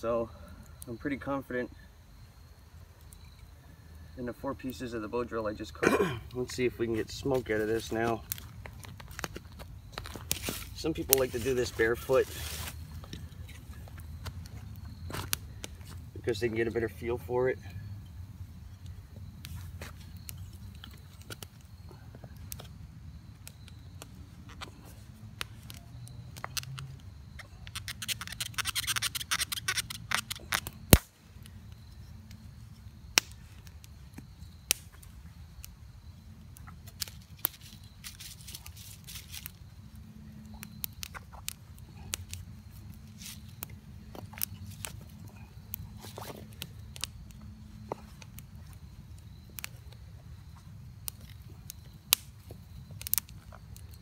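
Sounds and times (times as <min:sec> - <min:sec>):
low steady background noise: 0:00.0 - 0:54.0
rustling scrape: 0:10.4 - 0:12.9.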